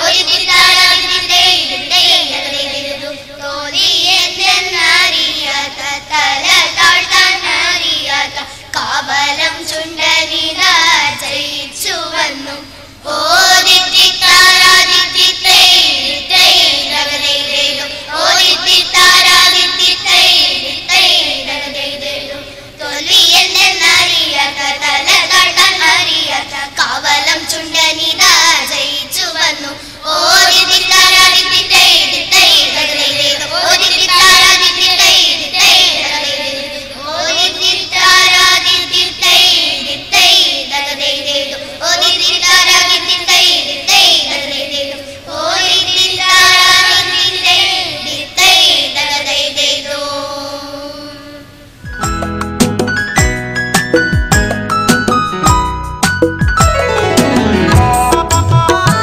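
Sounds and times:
children singing into microphones: 0.0 - 52.0.

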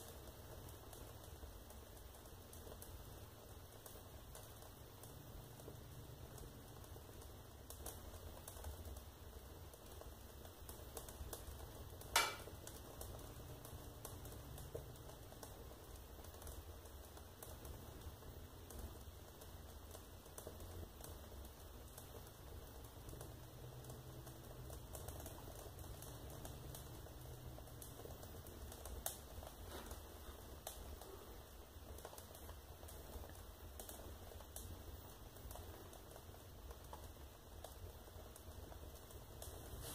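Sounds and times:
fire crackling: 0.0 - 39.9
fire pop: 9.8 - 15.6.

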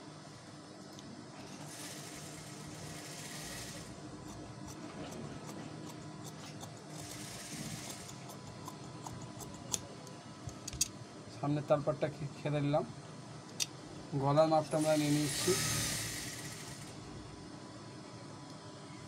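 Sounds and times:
steady low hum: 0.0 - 19.0
shears cutting cloth: 1.6 - 8.3.

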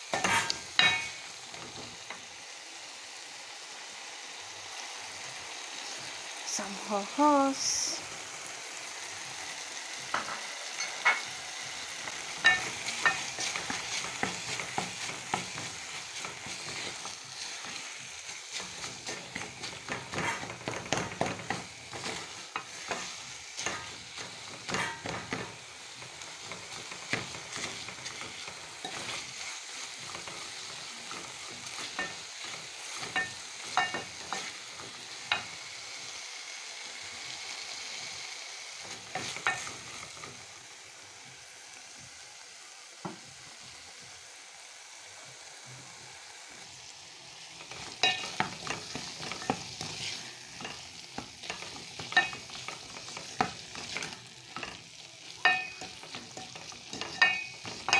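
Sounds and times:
stew sizzling in a pot: 0.0 - 57.9
spoon stirring and scraping: 0.1 - 1.2, 12.0 - 35.5, 38.8 - 40.3, 47.6 - 57.9
spoon knocking against pot: 51.5 - 52.4, 55.4 - 57.9.

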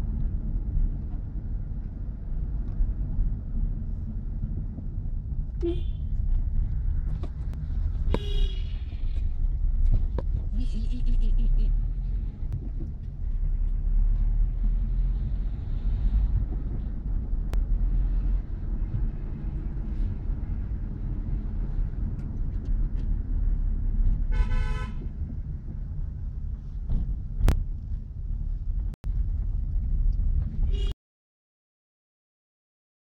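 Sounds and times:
road noise: 0.0 - 31.0
vehicle engine rumble: 0.0 - 31.0
vehicle horn: 5.6 - 6.1, 8.1 - 8.9, 24.3 - 25.1, 30.7 - 31.0.

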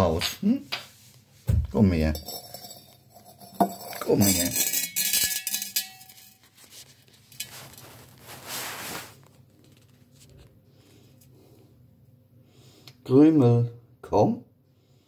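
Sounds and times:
glass vase clinking on stone: 2.1 - 6.5.

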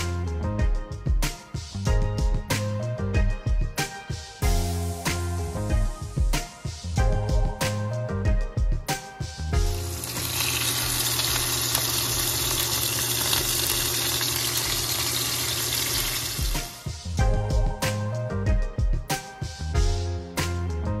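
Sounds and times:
background music: 0.0 - 14.2, 14.8 - 21.0
fish sizzling in hot oil: 9.7 - 16.9.

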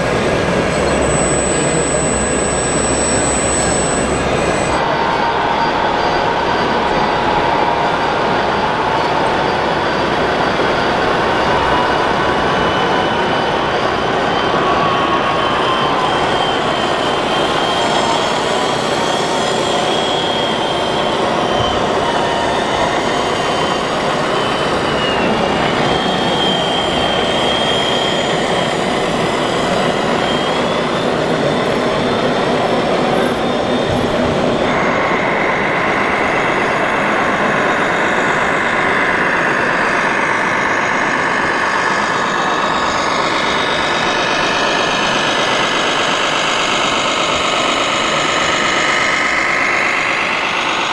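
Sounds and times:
model trucks running with whining tones: 0.0 - 50.9.

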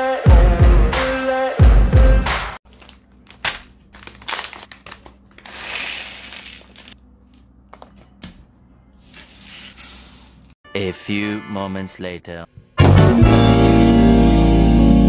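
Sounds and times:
packaging rustle: 2.7 - 7.0.

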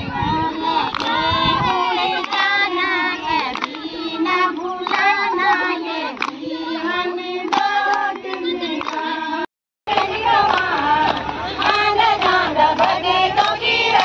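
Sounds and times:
women singing together: 0.0 - 14.0
hands clapping: 0.9 - 1.2, 2.2 - 2.6, 3.3 - 6.5, 7.4 - 9.1, 9.9 - 14.0.

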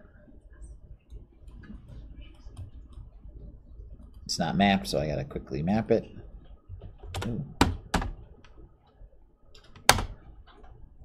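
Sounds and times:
keyboard and mouse clicks: 6.4 - 10.8.

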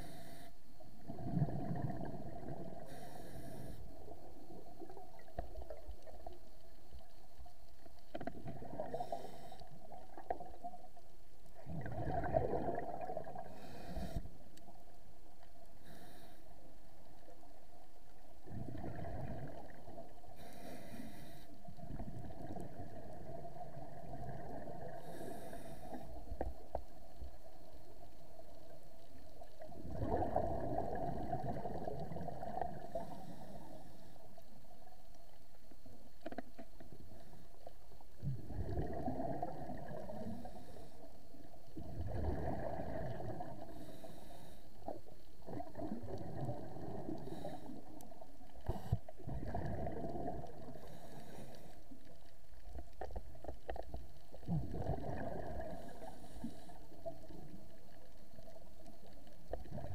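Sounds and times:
regulator inhalation hiss: 0.0 - 0.6, 2.9 - 4.0, 15.8 - 16.6, 20.4 - 21.6
exhaled bubbles underwater: 1.0 - 3.1, 3.8 - 15.5, 16.8 - 20.4, 21.6 - 44.1, 44.8 - 59.9.

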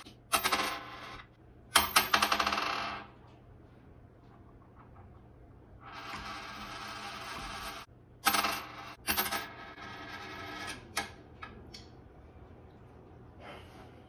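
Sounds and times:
coin striking tabletop: 0.3 - 1.2, 1.8 - 3.1, 5.9 - 10.7.

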